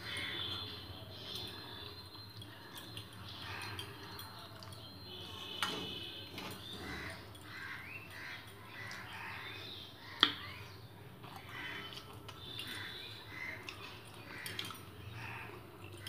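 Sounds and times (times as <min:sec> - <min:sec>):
crows cawing: 0:06.8 - 0:10.2, 0:11.4 - 0:11.9, 0:12.8 - 0:15.6.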